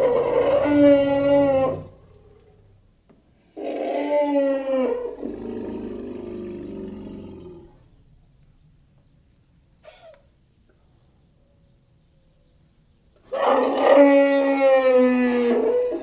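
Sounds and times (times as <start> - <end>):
elephant calls: 0.0 - 2.3, 9.8 - 10.3.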